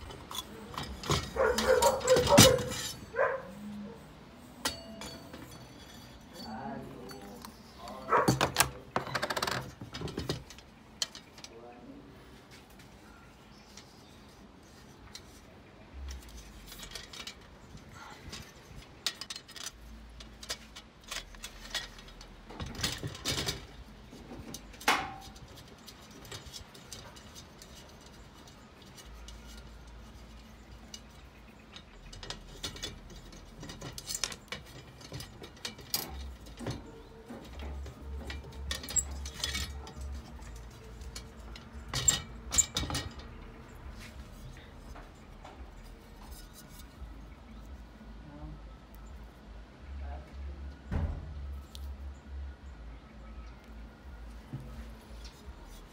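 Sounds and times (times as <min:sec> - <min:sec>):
glass and metal chandelier clinking: 0:04.6 - 0:07.9.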